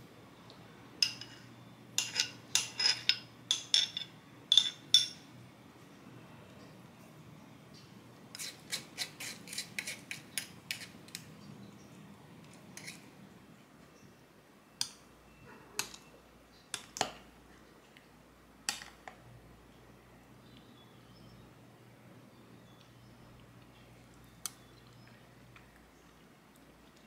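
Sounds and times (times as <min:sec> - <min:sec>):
spoon clinking in glass cup: 0:02.0 - 0:05.2.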